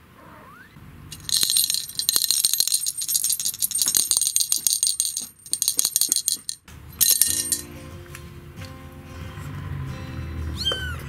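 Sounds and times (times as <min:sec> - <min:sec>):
bell jingling in rolling cat toy: 0:01.1 - 0:07.7.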